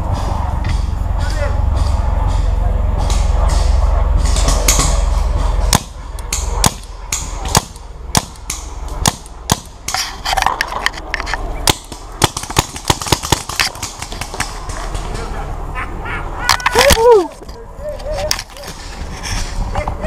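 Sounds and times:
low rumble: 0.0s - 20.0s
paintball markers firing: 11.6s - 15.0s.

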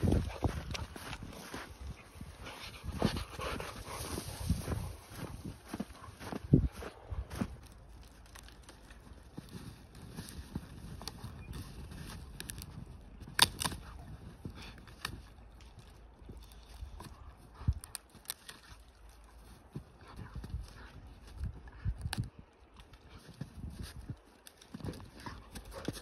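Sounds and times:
dog chewing a branch: 7.6s - 26.0s.

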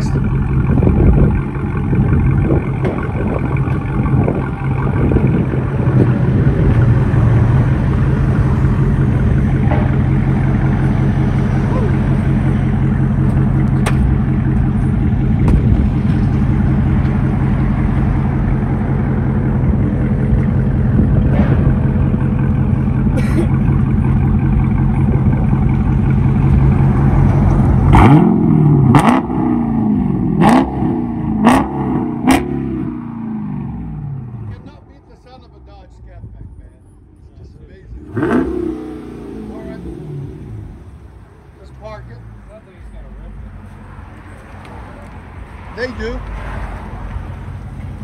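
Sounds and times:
car engine idling and revving: 0.0s - 48.0s.

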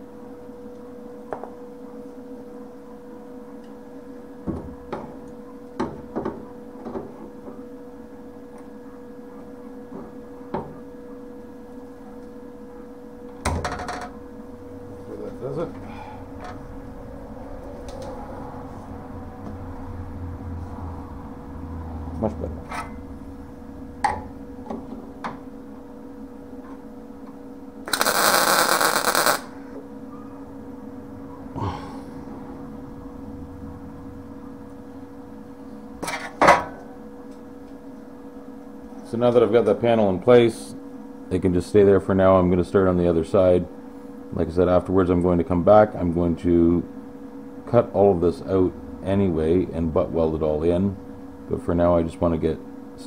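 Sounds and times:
steady hum: 0.0s - 53.0s
welder arc crackling sizzle: 27.8s - 29.6s.

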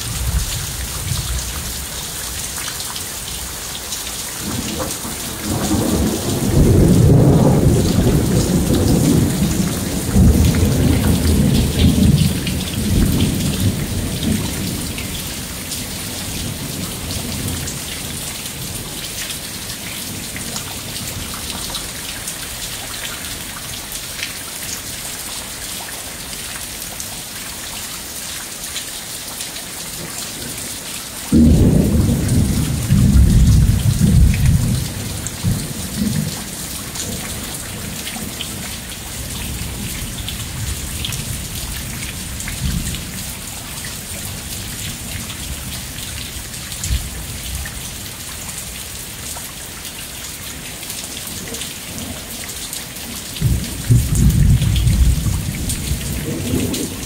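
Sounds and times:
heavy rain: 0.0s - 57.0s
thunder rolling: 4.4s - 15.0s, 31.4s - 36.4s, 53.4s - 57.0s.

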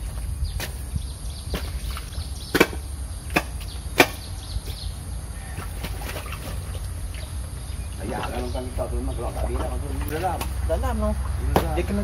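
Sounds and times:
digging tool chopping into mud: 1.5s - 4.3s, 11.5s - 11.9s.

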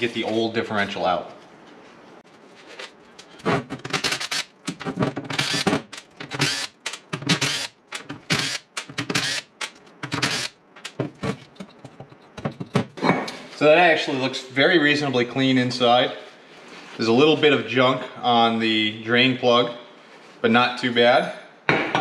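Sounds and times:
impact driver bursts: 5.3s - 10.6s.

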